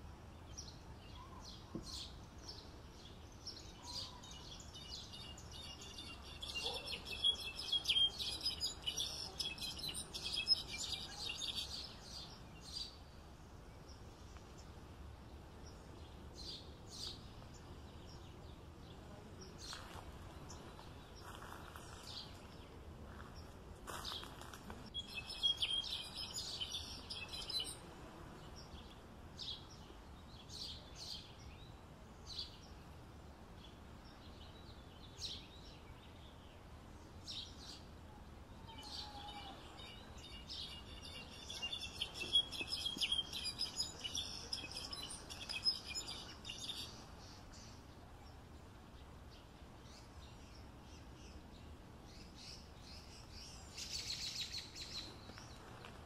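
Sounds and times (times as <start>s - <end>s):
faint background hiss: 0.0s - 56.0s
finch twittering: 25.0s - 27.8s, 39.8s - 46.9s.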